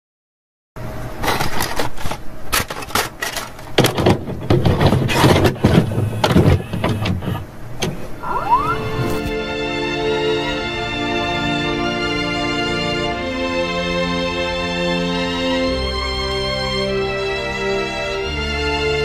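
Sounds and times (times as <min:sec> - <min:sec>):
short rising whine: 0:08.0 - 0:09.7
music: 0:08.5 - 0:19.0.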